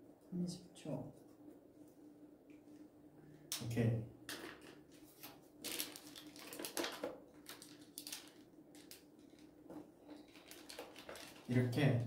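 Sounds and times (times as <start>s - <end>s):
paper rustling and crinkling: 4.4s - 11.8s.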